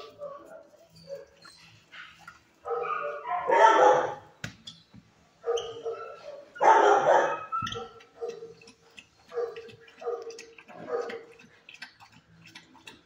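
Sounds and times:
dog barking: 2.6s - 4.3s, 5.4s - 8.6s, 9.3s - 11.3s.

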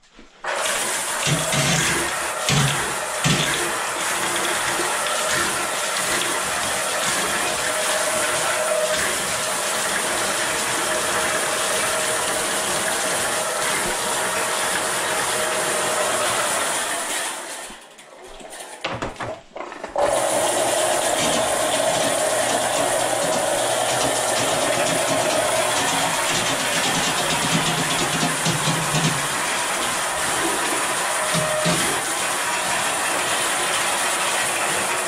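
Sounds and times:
drain cleaning machine running: 0.4s - 18.8s, 19.9s - 35.0s
steel cable rattling in drain: 0.7s - 17.7s, 18.5s - 35.0s.

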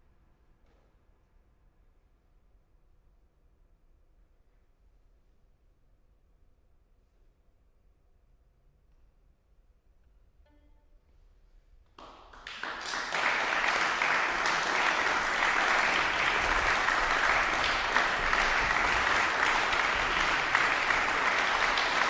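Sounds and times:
audience applauding: 12.0s - 22.0s.

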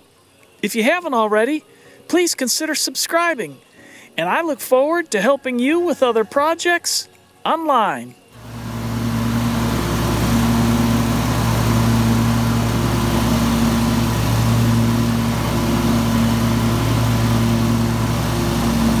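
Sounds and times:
riding mower engine running: 8.4s - 19.0s.

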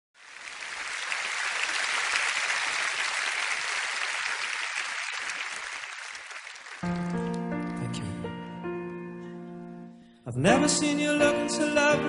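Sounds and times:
audience applause: 0.2s - 8.1s.

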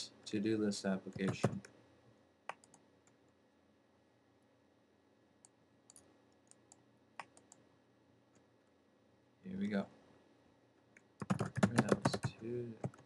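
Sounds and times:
computer mouse clicks: 2.5s - 3.2s, 5.4s - 7.6s.

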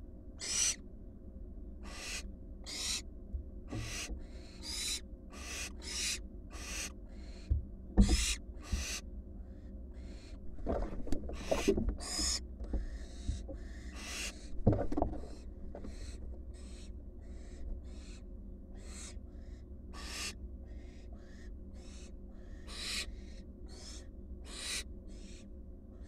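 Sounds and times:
owl chicks hissing begging calls: 0.4s - 0.8s, 1.8s - 3.1s, 3.7s - 10.4s, 11.4s - 14.5s, 15.9s - 26.0s
owls knocking in wooden nest box: 3.7s - 9.0s, 10.6s - 16.2s.

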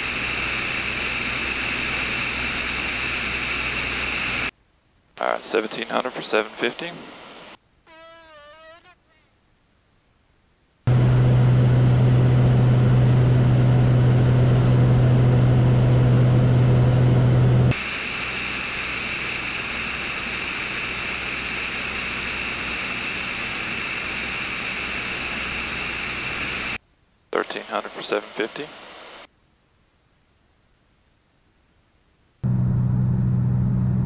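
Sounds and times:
airplane engine droning: 0.0s - 4.5s, 10.9s - 26.8s, 32.4s - 34.0s.

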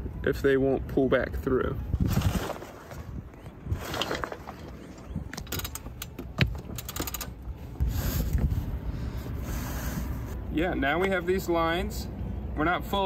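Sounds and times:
rigging hardware clicking and rattling: 5.2s - 7.5s.

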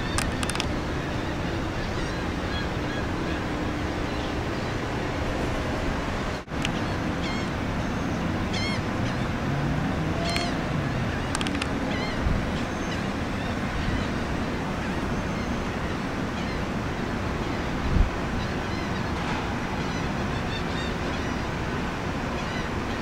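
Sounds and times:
wind: 0.0s - 23.0s.

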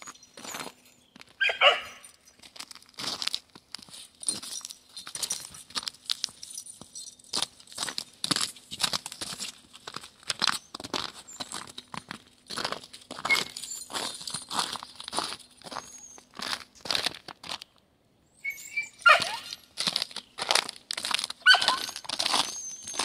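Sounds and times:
footsteps crunching in snow: 0.0s - 6.5s, 7.3s - 17.6s, 19.0s - 23.0s.

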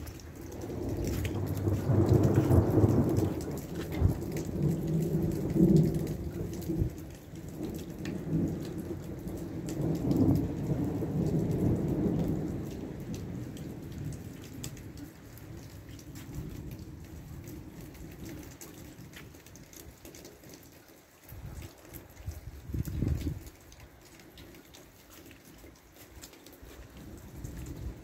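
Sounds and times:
thunder rumbling: 0.0s - 18.3s
falling rain: 0.0s - 28.0s.

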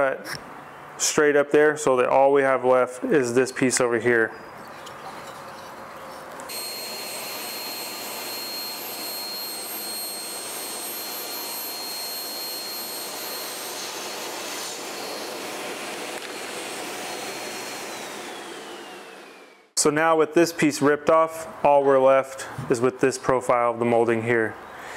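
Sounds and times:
table saw whining: 6.5s - 19.8s.

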